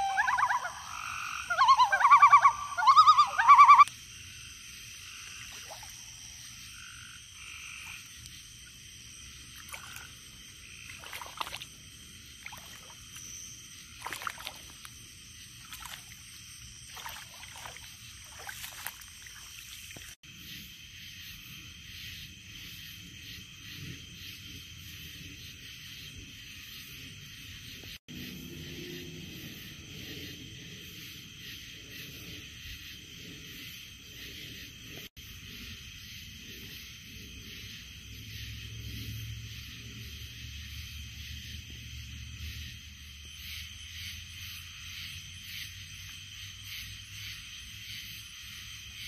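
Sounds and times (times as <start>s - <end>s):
frog croaking loudly: 0.0s - 3.9s
chorus of frogs and insects: 0.0s - 49.0s
soft rustles in wet grass: 7.7s - 20.2s.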